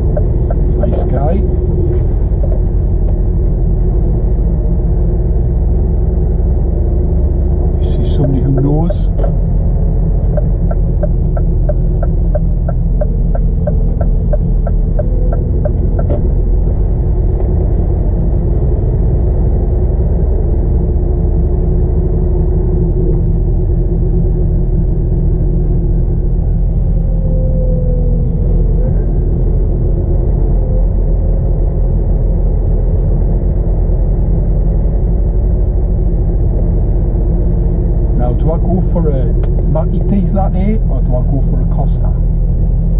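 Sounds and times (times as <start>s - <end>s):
diesel lorry engine droning: 0.0s - 42.9s
quick regular ticking: 10.3s - 16.1s.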